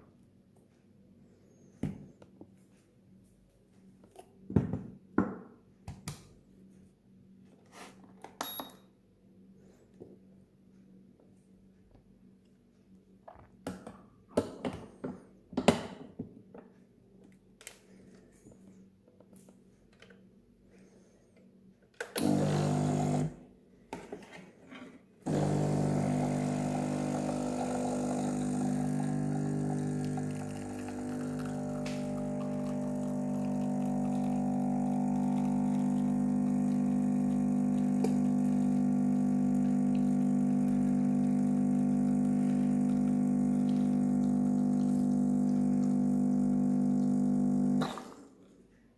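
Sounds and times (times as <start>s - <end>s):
espresso machine pump humming: 22.2s - 23.4s, 25.3s - 48.0s.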